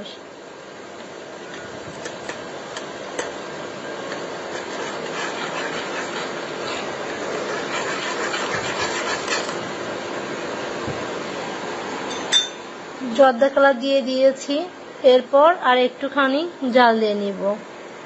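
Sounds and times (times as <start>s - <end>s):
syrup boiling in pan: 1.3s - 11.4s.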